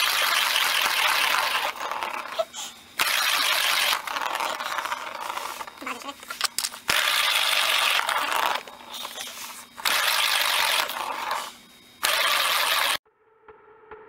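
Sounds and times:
ball rattling around plastic track: 0:00.0 - 0:02.4, 0:03.0 - 0:08.7.

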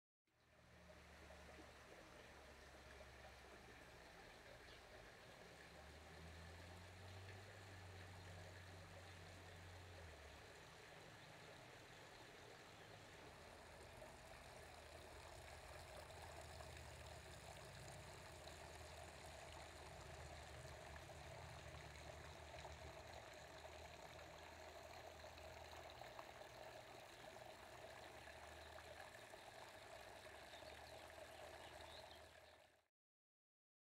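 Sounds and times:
fountain splashing: 0:00.6 - 0:32.7.

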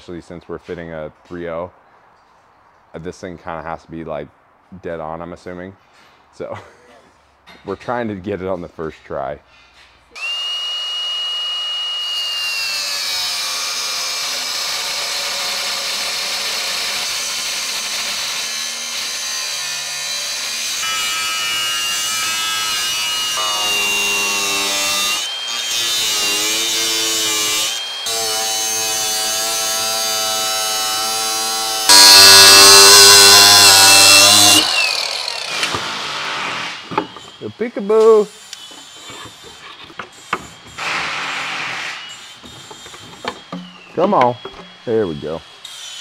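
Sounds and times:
power tool cutting sheet metal: 0:10.2 - 0:37.4, 0:38.0 - 0:46.0.

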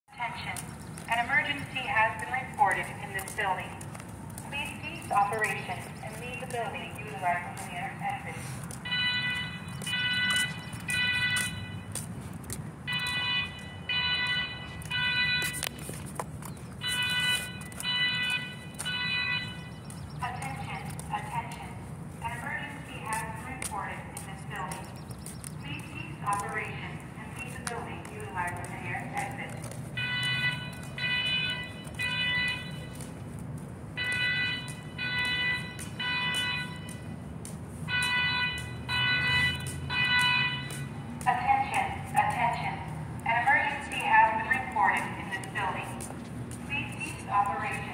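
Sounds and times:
fire alarm horns: 0:04.6 - 0:12.0, 0:12.9 - 0:15.8, 0:16.8 - 0:21.6, 0:30.0 - 0:33.1, 0:34.0 - 0:37.2, 0:37.9 - 0:45.9.

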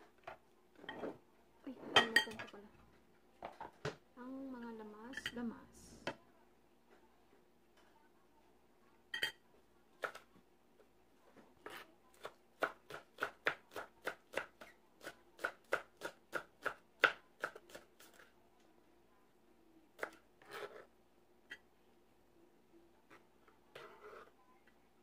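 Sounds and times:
knife chopping on a plastic board: 0:11.6 - 0:18.2.

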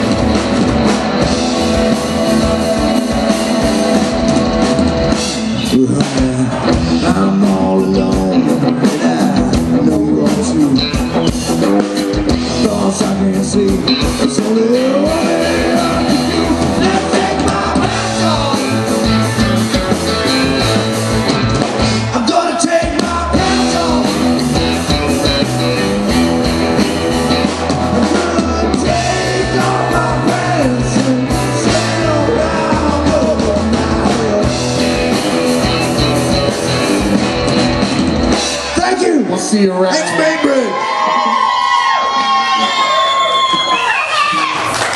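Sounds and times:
electric guitars: 0:00.0 - 0:39.1
drum kit: 0:00.0 - 0:39.5
person singing: 0:05.6 - 0:19.1, 0:22.0 - 0:24.7, 0:28.0 - 0:35.0.

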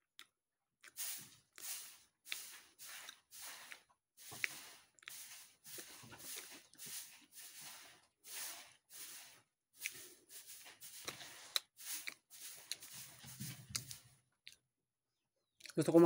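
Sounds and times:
person chewing food: 0:00.0 - 0:14.6
lip clicks: 0:00.2 - 0:05.2.

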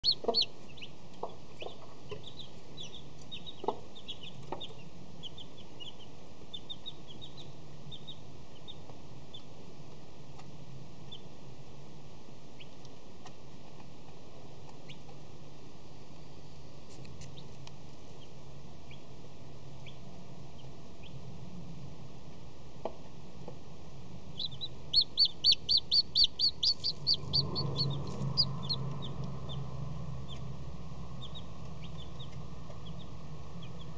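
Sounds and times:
chick peeping: 0:00.0 - 0:09.6, 0:10.3 - 0:11.4, 0:12.5 - 0:13.9, 0:14.6 - 0:15.2, 0:17.2 - 0:21.3, 0:24.3 - 0:33.9
low hum: 0:00.0 - 0:33.9.

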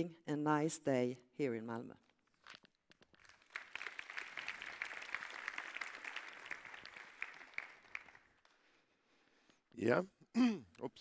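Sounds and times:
audience applauding: 0:03.2 - 0:08.5.

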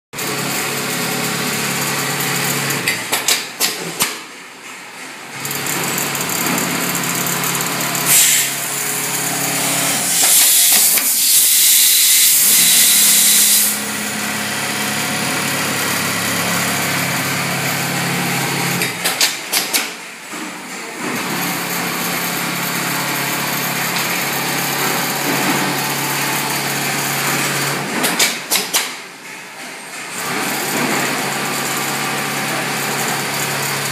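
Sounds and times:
loud hiss: 0:10.0 - 0:13.8.

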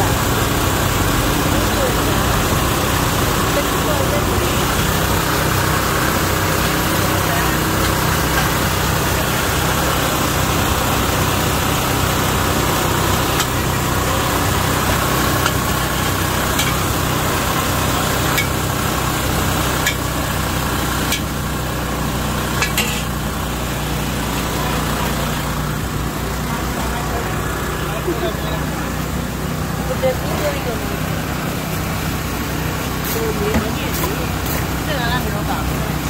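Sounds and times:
noodles sizzling in a wok: 0:10.4 - 0:24.4
metal spatula scraping a wok: 0:22.6 - 0:23.1.

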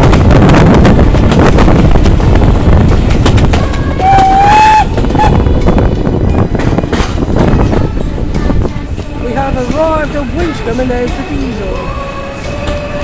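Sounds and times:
steam locomotive running: 0:00.0 - 0:13.0
steam whistle blast: 0:04.0 - 0:05.4.

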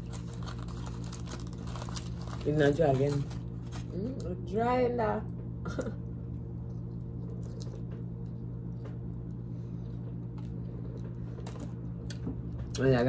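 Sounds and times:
steady low hum: 0:00.0 - 0:13.0
people chewing: 0:05.7 - 0:12.9.

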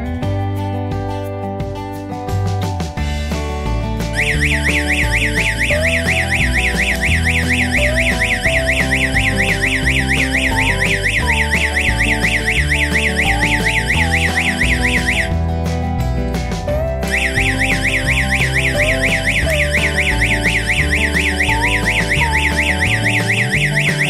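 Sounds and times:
background guitar music: 0:00.0 - 0:24.0
electronic siren warbling: 0:04.2 - 0:15.3, 0:17.1 - 0:24.0.

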